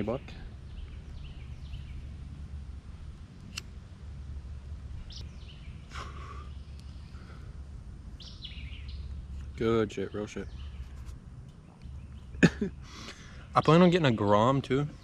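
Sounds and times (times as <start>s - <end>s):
small birds chirping: 0.0s - 3.7s, 4.9s - 15.0s
low rumble: 0.0s - 9.6s.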